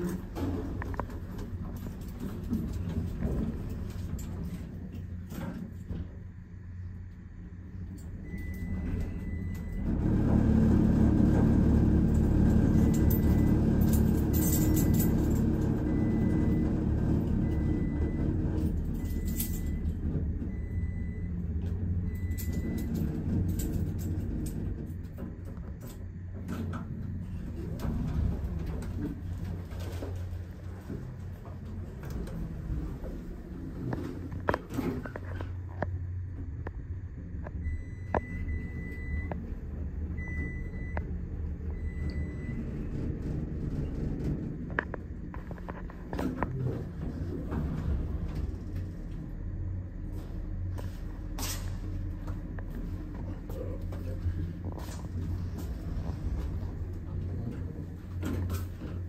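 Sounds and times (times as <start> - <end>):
elevator low rumble: 0.0 - 59.0.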